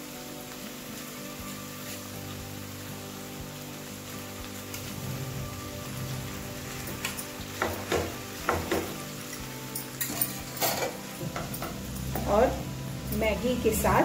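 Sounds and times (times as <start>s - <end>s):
light sizzling: 0.0s - 14.0s
strainer knocking against pan: 7.6s - 9.0s.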